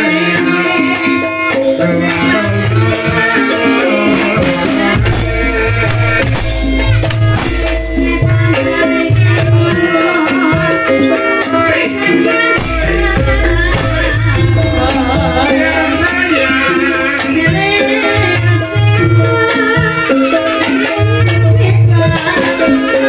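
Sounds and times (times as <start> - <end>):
person singing: 0.0 - 6.2, 8.0 - 23.0
hand drumming: 0.0 - 23.0
metallophone notes: 11.0 - 20.6.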